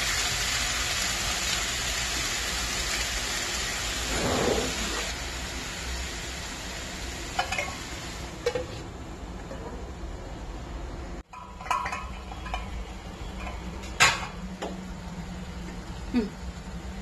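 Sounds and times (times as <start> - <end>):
spatula scraping a wok: 4.0 - 5.1.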